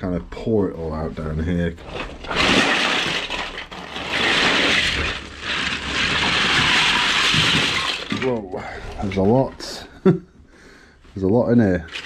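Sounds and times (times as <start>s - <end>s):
plastic bricks clattering onto carpet: 1.8s - 9.0s.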